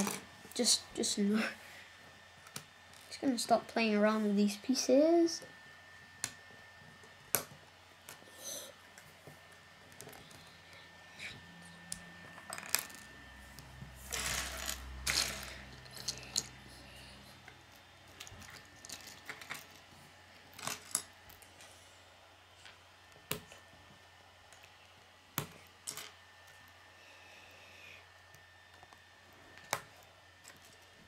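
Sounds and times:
plastic pieces clattering on table: 14.1s - 16.5s, 18.2s - 19.8s.

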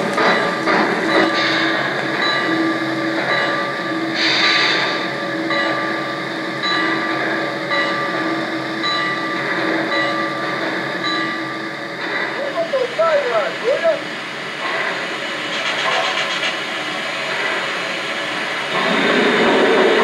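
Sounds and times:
pulsing mechanical hum: 0.0s - 20.0s
steam hiss: 3.9s - 6.5s, 11.9s - 20.0s.

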